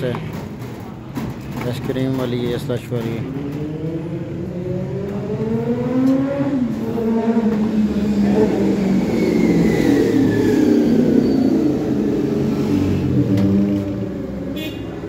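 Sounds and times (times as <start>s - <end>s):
high tone gliding downward: 3.6s - 13.3s.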